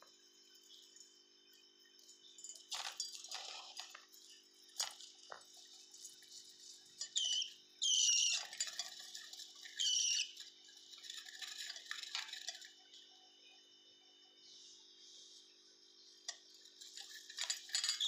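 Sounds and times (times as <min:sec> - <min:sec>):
faint steady hum: 0:00.0 - 0:18.0
budgerigar chicks chirping: 0:07.2 - 0:08.5, 0:09.8 - 0:10.4.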